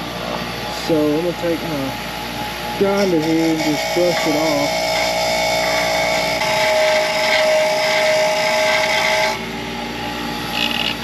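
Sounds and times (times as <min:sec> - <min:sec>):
bench grinder wire wheel brushing: 0:02.8 - 0:09.4.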